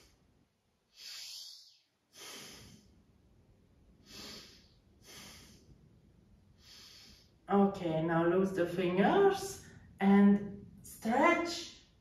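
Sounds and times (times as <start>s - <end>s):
woman breathing: 0.0s - 0.3s, 0.9s - 3.2s, 3.9s - 7.5s.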